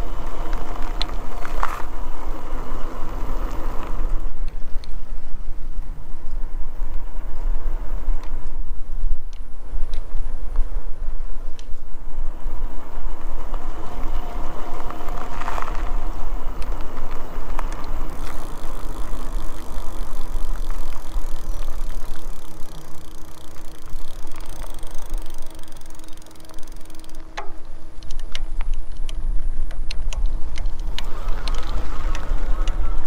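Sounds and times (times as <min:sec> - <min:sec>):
electric bike tyres and motor hum: 0:00.0 - 0:33.0
wind rumble on microphone: 0:00.0 - 0:33.0
drivetrain clicks and rattles: 0:11.4 - 0:33.0.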